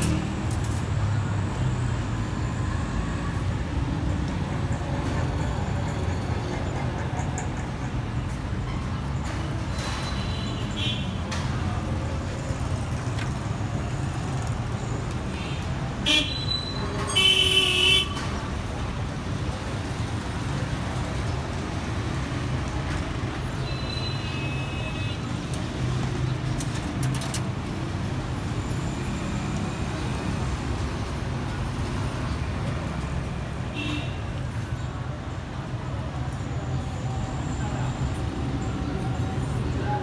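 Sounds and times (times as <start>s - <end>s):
street traffic hum: 0.0s - 40.0s
vehicle horns honking: 16.0s - 18.2s.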